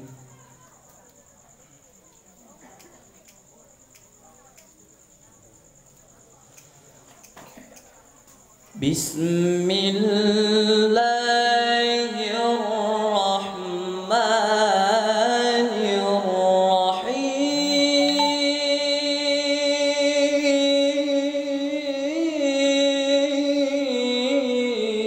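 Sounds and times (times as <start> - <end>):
boy chanting melodically: 8.8 - 25.0.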